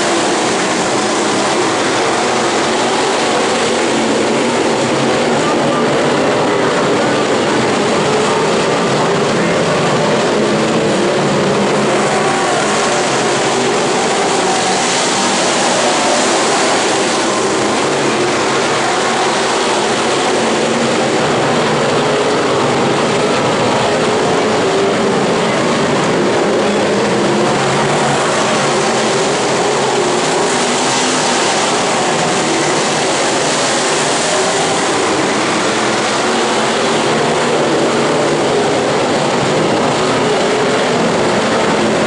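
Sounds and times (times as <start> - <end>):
stock car engines racing: 0.0 - 42.0.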